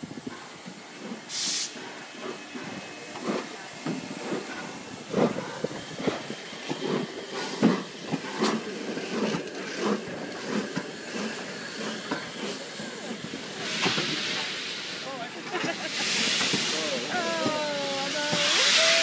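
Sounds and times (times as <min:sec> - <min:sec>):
steam hissing from locomotive: 0:00.0 - 0:19.0
crowd chatter: 0:02.2 - 0:07.3, 0:11.2 - 0:19.0.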